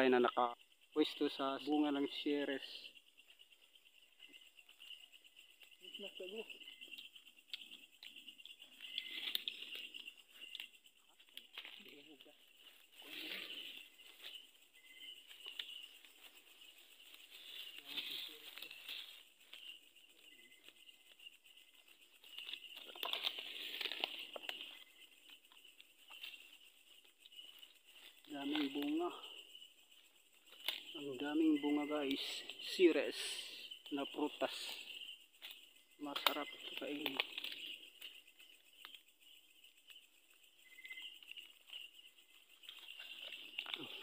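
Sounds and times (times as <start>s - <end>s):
night insects chirring: 0.0s - 44.0s
foliage rustling and crackling: 4.3s - 31.0s.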